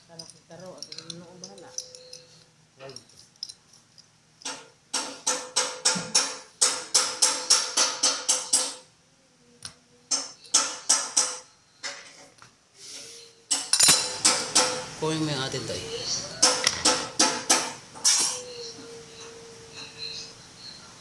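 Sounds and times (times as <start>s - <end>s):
hammer striking metal: 4.4s - 8.8s, 10.1s - 11.5s, 13.5s - 15.0s, 16.4s - 17.8s.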